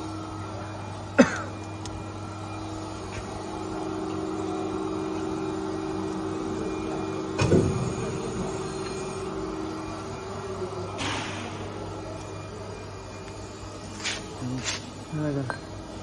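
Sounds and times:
lathe humming: 0.0s - 11.0s
loud metal clunk: 7.4s - 8.0s, 11.0s - 11.6s.

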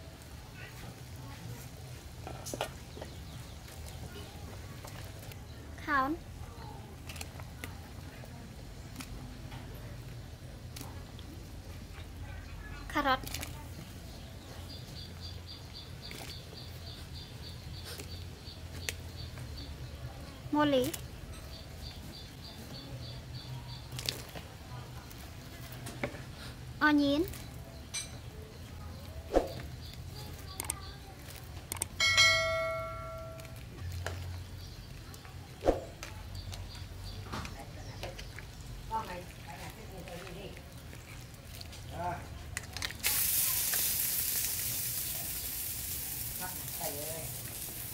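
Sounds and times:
high even chirping: 31.7s - 33.6s
chime-like bell ding: 32.0s - 33.6s.

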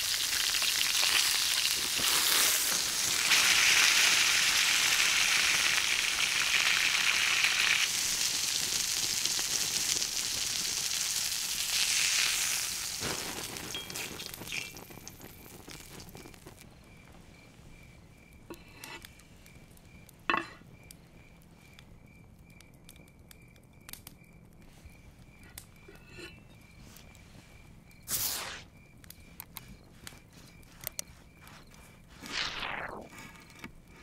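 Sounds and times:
steak sizzling in pan: 0.0s - 16.6s
crickets chirping: 0.0s - 34.0s.

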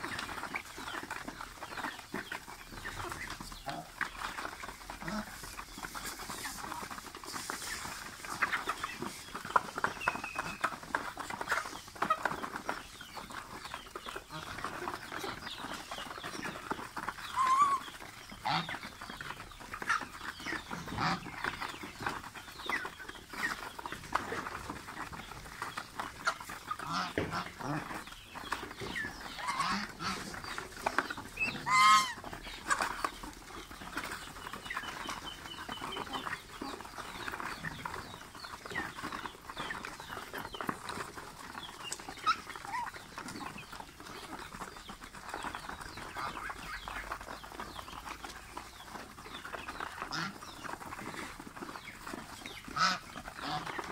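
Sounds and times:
chicken clucks: 0.0s - 53.9s
goose honk: 31.6s - 32.2s, 52.8s - 53.7s.

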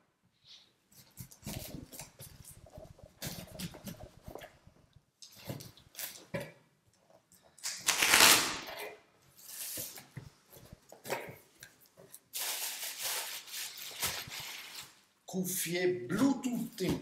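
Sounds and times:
cardboard and bubble wrap rustling: 0.9s - 4.6s, 7.8s - 15.2s
packing tape ripping: 7.6s - 10.0s, 12.3s - 15.0s.

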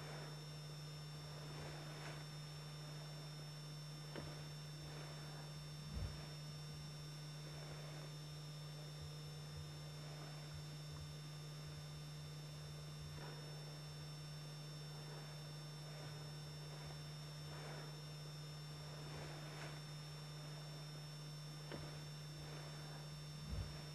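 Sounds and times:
low electrical hum: 0.0s - 23.9s
even hiss: 1.3s - 3.5s, 14.9s - 18.0s, 18.8s - 21.0s.

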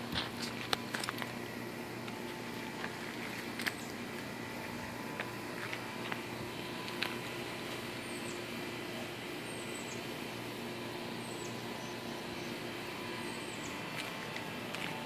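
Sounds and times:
outdoor background hum: 0.0s - 15.0s
small bird chirping: 9.4s - 10.1s, 13.2s - 13.9s.

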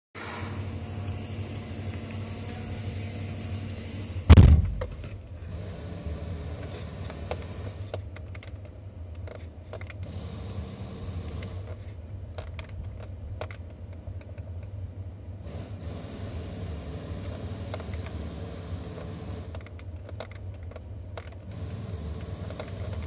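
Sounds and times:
diesel engine idling: 0.3s - 7.9s
heavy thump: 4.3s - 5.2s.

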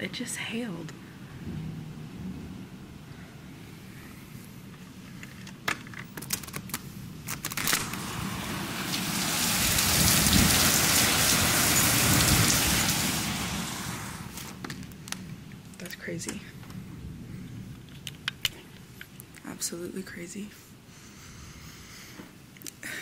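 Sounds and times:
heavy rain falling: 7.5s - 17.3s.

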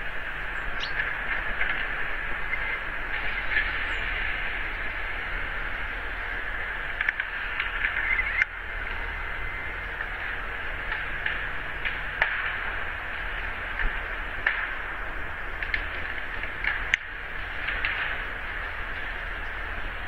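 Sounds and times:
electronic hiss: 0.0s - 20.0s
low mains hum: 0.0s - 20.0s
faint clicks: 7.0s - 8.5s.

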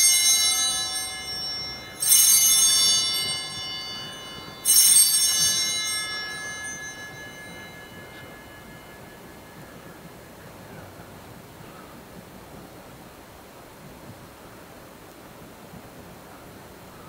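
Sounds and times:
altar bells ringing: 0.0s - 11.7s.

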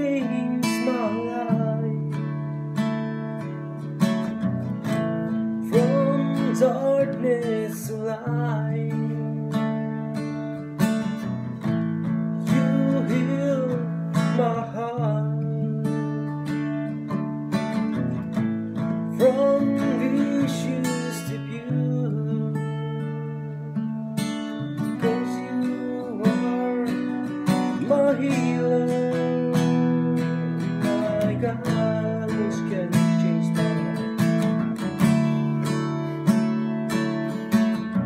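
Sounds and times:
man singing: 0.0s - 2.6s, 5.6s - 10.2s, 12.4s - 17.0s, 19.0s - 24.0s, 24.8s - 36.3s
acoustic guitar strumming: 0.0s - 38.0s.

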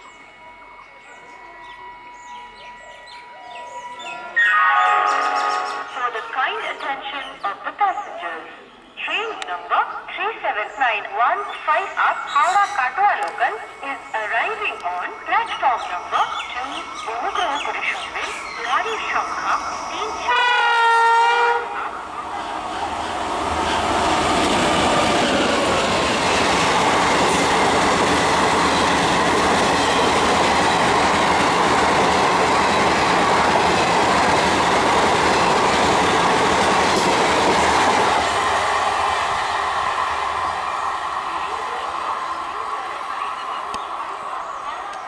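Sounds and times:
electric locomotive horn: 4.4s - 6.0s, 20.3s - 22.0s
train wheels rushing on rails: 12.2s - 45.0s.

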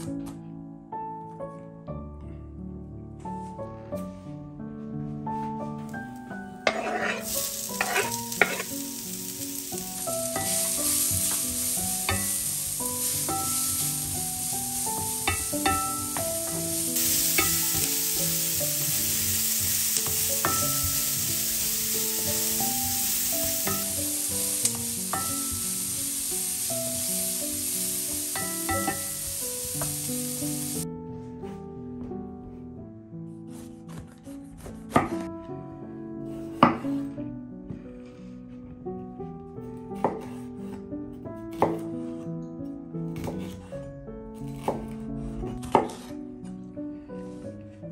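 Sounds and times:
background music: 0.0s - 47.9s
food sizzling in frying pan: 6.6s - 30.8s.

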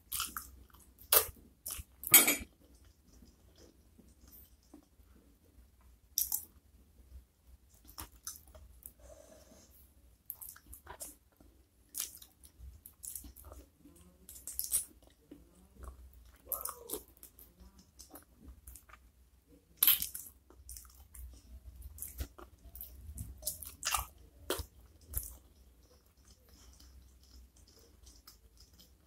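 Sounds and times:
wet chewing and biting: 19.8s - 29.0s.

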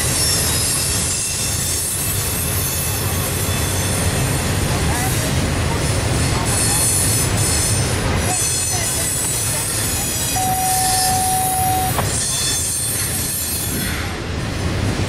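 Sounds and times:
freight train wheels rumbling: 0.0s - 15.0s
wheel flanges squealing: 7.6s - 13.8s.

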